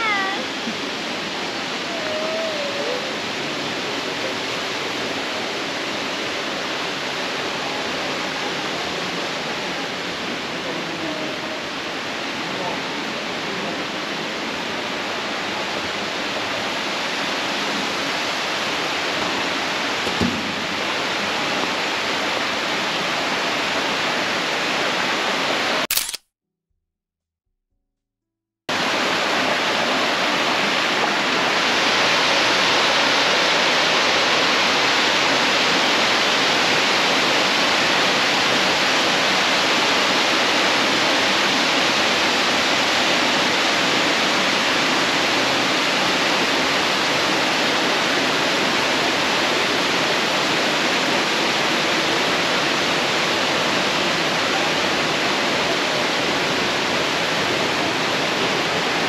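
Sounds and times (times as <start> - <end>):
waterfall roaring: 0.0 - 25.8, 28.7 - 59.0.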